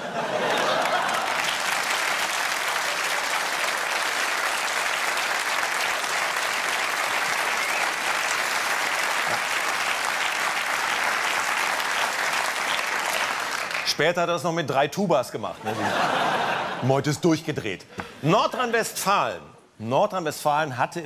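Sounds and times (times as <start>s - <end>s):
audience applauding: 0.0s - 14.0s.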